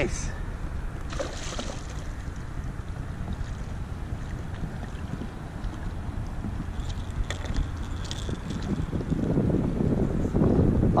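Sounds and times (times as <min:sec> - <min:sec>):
wind buffeting microphone: 0:00.0 - 0:11.0
water lapping at kayak: 0:01.0 - 0:09.2.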